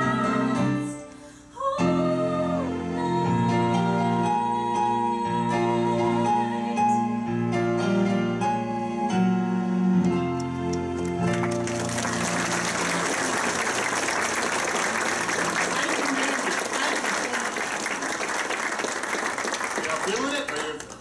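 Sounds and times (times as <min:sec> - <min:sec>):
instrumental music: 0:01.8 - 0:15.9
audience applause: 0:10.4 - 0:21.0.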